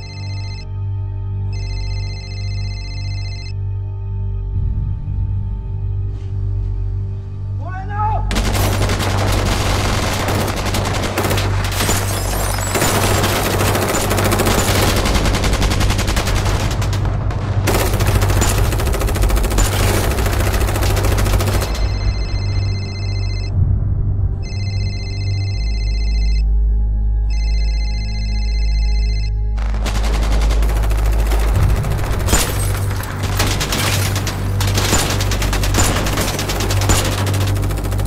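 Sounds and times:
low music drone: 0.0s - 38.0s
automatic gunfire: 8.3s - 21.8s, 29.6s - 38.0s.

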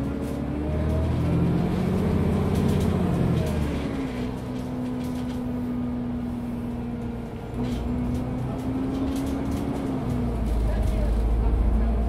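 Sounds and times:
bus engine drone: 0.0s - 12.0s.

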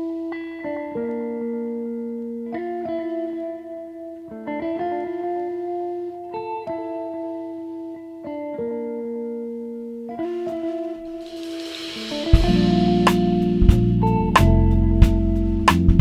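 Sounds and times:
slow instrumental music: 0.0s - 16.0s.

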